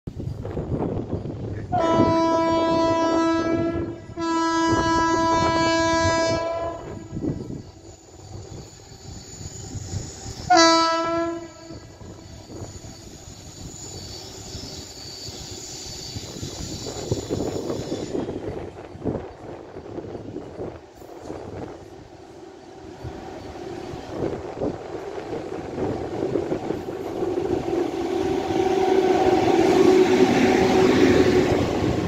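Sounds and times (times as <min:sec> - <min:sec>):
train running noise: 0:00.1 - 0:32.0
train horn blasts: 0:01.6 - 0:07.4, 0:10.4 - 0:12.3, 0:27.9 - 0:32.0.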